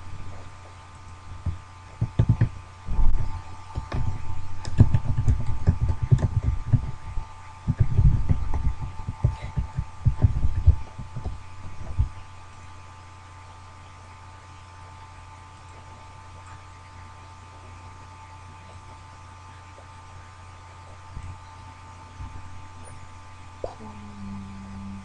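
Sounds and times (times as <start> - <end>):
steady high hum: 0.0 - 25.0
deep dull thumps and knocks: 1.3 - 12.2.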